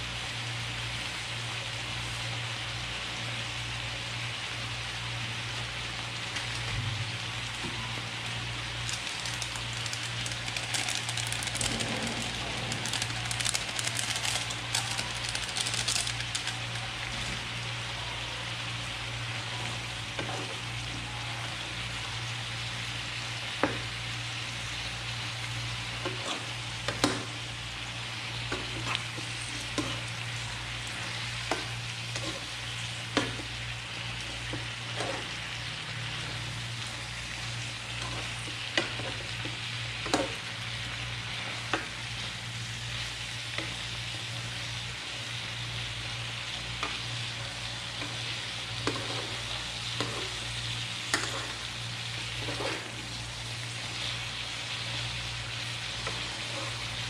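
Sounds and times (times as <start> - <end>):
food sizzling in a frying pan: 0.0 - 57.0
low hum: 10.4 - 15.6.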